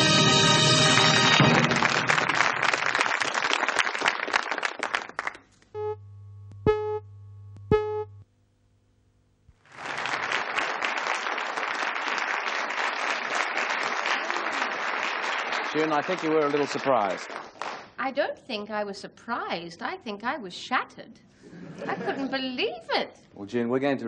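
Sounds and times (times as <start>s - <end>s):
audience applauding: 0.0s - 5.5s, 9.6s - 18.0s
buzzy test tone with hum: 5.7s - 9.6s.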